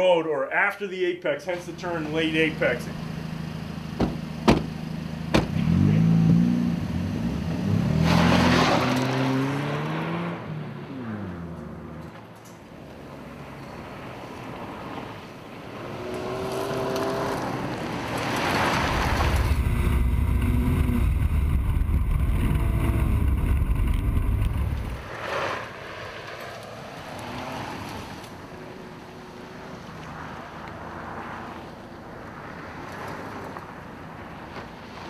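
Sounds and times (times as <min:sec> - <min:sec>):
rally car engine revving: 0:02.0 - 0:12.2, 0:15.8 - 0:25.6.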